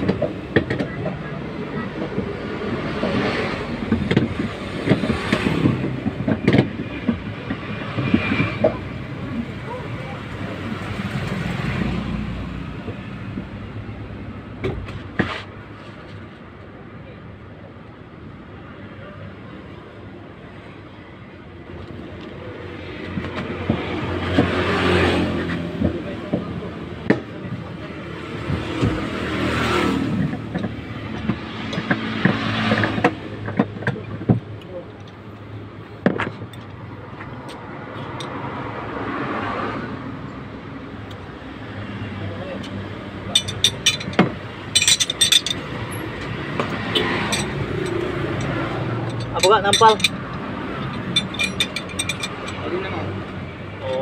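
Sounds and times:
road vehicle passing: 0:00.0 - 0:16.2, 0:21.8 - 0:54.0
metal rod clinks: 0:43.3 - 0:45.7, 0:47.3 - 0:50.2, 0:50.8 - 0:52.7
sharp metal clanks: 0:43.3 - 0:46.0, 0:46.6 - 0:52.9.

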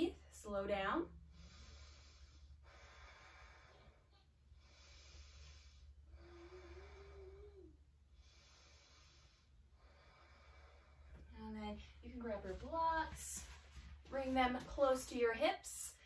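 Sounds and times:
steady low hum: 0:00.0 - 0:16.0
faint slow breathing: 0:01.1 - 0:12.0.

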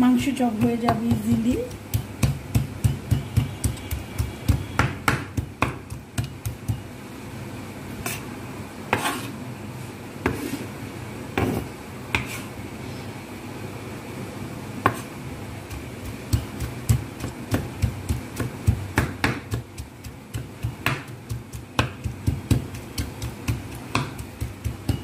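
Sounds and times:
knife chopping on wooden board: 0:00.6 - 0:06.8, 0:14.9 - 0:15.1, 0:15.7 - 0:25.0.

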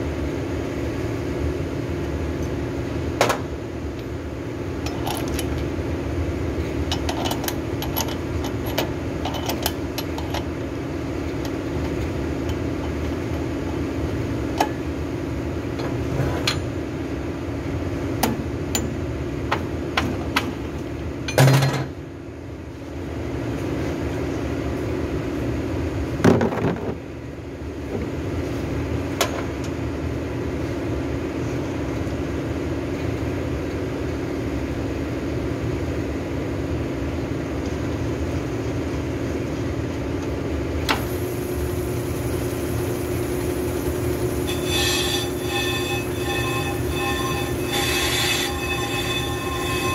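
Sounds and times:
brake lathe humming: 0:40.8 - 0:49.9.

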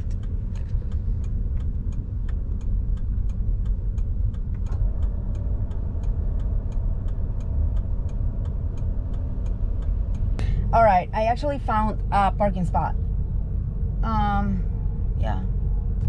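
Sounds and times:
turn signal clicking: 0:00.0 - 0:11.4
engine low rumble: 0:00.0 - 0:16.0.

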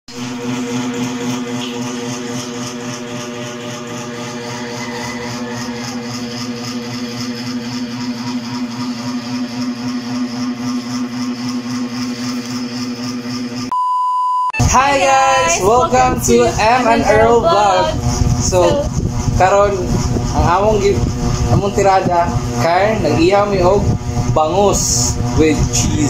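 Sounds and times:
motor humming: 0:00.1 - 0:13.6, 0:14.6 - 0:26.0
high beep: 0:13.7 - 0:15.0.

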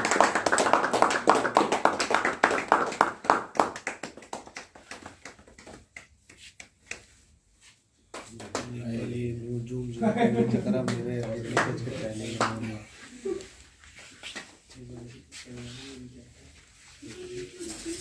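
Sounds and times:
group clapping hands: 0:00.0 - 0:07.2, 0:08.0 - 0:08.9, 0:10.7 - 0:12.8.

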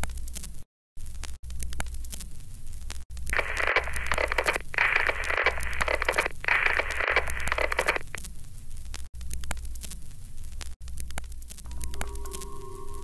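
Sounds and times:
crackly radio-like noise: 0:01.0 - 0:13.0
steady low hum: 0:03.3 - 0:08.2.

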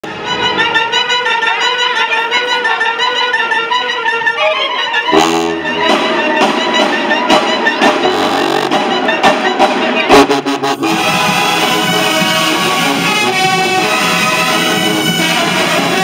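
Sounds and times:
marching band playing: 0:03.4 - 0:16.0
deep sousaphone notes: 0:05.0 - 0:09.3, 0:10.0 - 0:13.4
sharp percussion hits: 0:05.1 - 0:16.0.

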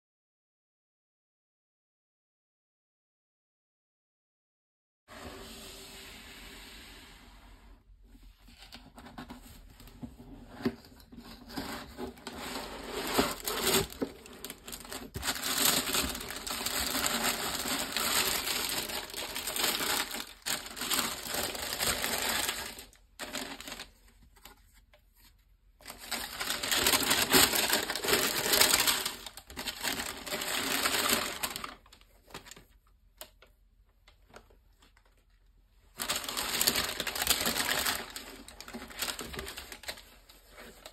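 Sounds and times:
tissue paper crinkling: 0:11.3 - 0:32.8, 0:35.9 - 0:40.9.

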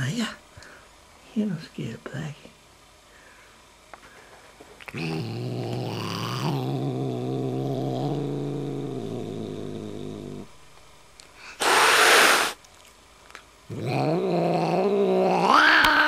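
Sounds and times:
cat hissing: 0:04.8 - 0:10.5, 0:11.4 - 0:12.6, 0:13.7 - 0:16.0
cat growling: 0:04.8 - 0:10.6, 0:11.6 - 0:12.6, 0:13.7 - 0:16.0.

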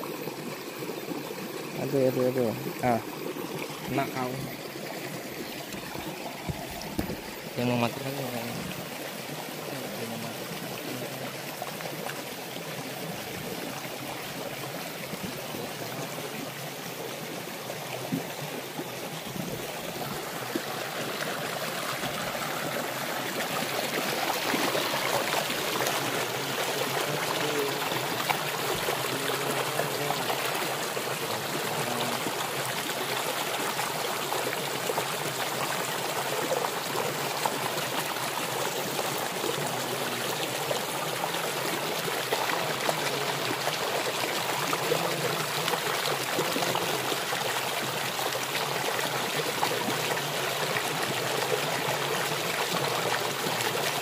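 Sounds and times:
stream splashing over rocks: 0:00.0 - 0:54.0
small cascade pouring: 0:17.7 - 0:54.0.

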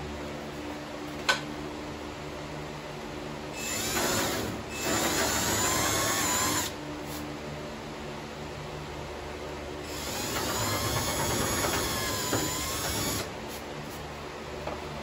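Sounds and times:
cordless drill whining on steel: 0:03.6 - 0:06.8, 0:09.8 - 0:13.3.

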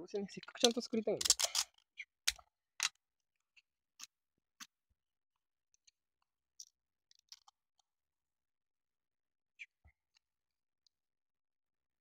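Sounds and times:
plastic handling clicks and rustles: 0:00.3 - 0:03.0.

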